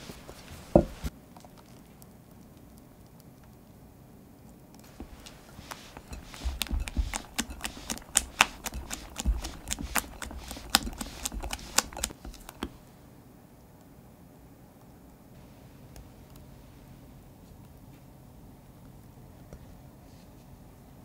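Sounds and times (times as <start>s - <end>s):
spatula tapping glass bowl: 4.9s - 12.6s.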